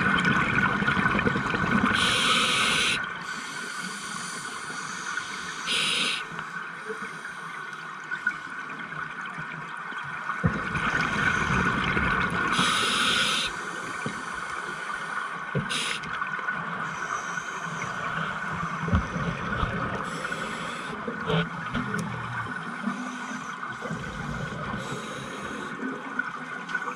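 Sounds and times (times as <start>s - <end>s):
low rumble of water movement: 0.0s - 26.9s
hissing bursts of exhaled bubbles: 1.7s - 6.4s, 10.8s - 16.1s.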